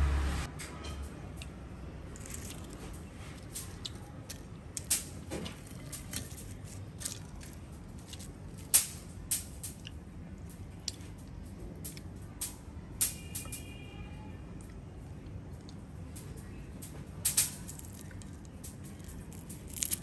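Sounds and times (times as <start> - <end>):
chopsticks crunching fried food: 2.1 - 10.0, 17.3 - 20.0.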